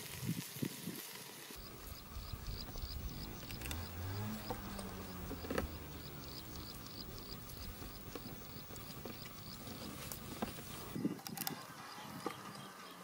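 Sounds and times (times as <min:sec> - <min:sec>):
insects chirping: 0:01.6 - 0:11.0.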